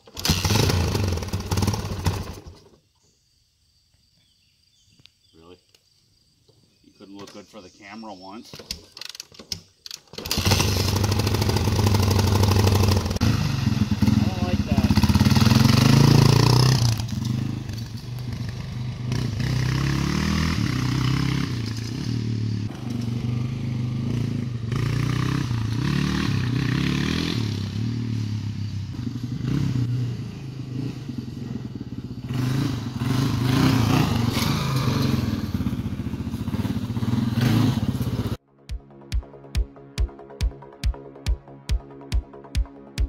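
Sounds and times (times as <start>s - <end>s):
motorcycle engine revving: 0.0s - 2.7s, 10.1s - 38.4s.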